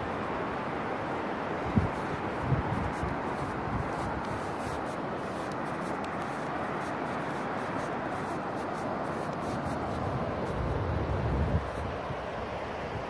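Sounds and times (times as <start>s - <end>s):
faint light crackles: 1.9s - 10.7s.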